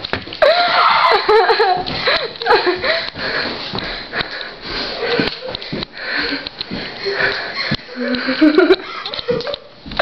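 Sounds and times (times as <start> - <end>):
person breathing hard: 1.9 - 8.7.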